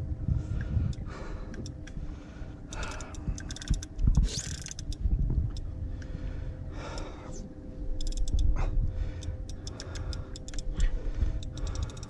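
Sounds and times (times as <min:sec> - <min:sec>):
wind and water rumble: 0:00.0 - 0:12.0
fishing reel clicks and knocks: 0:02.7 - 0:05.7, 0:08.0 - 0:08.5, 0:09.2 - 0:12.0.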